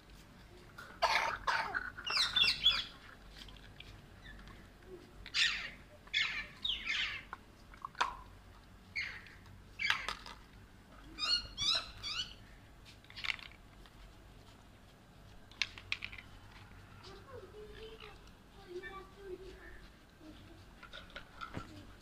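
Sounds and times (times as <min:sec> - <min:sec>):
parakeets squawking: 0:02.0 - 0:03.0, 0:05.3 - 0:07.3, 0:09.0 - 0:10.1.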